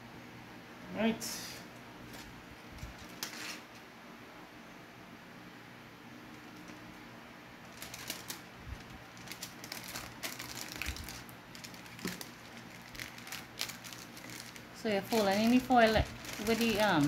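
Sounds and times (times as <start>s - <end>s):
aluminium foil crinkling: 2.1s - 3.8s, 6.3s - 7.0s, 7.6s - 17.0s.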